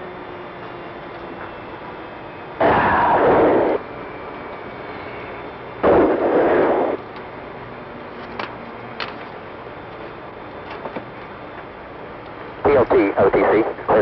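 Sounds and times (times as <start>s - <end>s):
intercom static hiss: 2.6s - 3.8s, 5.8s - 7.0s, 12.6s - 14.0s.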